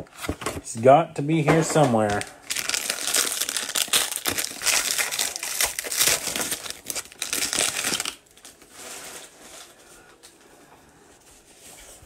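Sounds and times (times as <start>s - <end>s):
foil wrapper crinkling and tearing: 2.1s - 9.7s.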